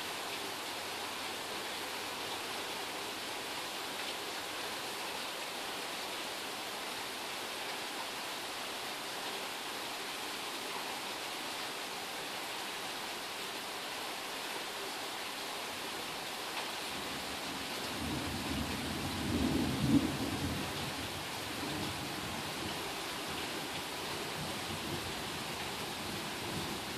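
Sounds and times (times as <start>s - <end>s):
steady rain: 0.0s - 26.9s
low rumble of thunder: 18.0s - 22.8s.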